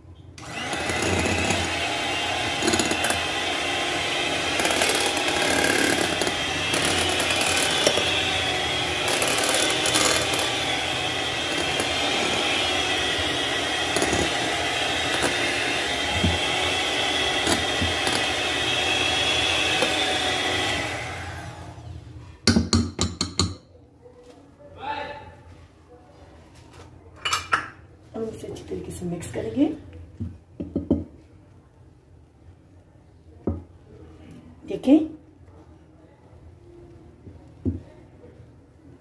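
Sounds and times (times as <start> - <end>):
electric hand mixer whipping cream: 0.4 - 21.8.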